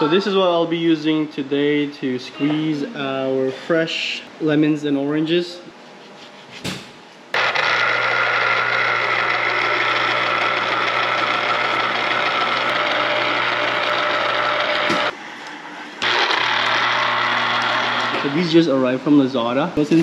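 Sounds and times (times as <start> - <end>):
electric juicer motor humming: 7.3 - 15.2, 16.0 - 18.5.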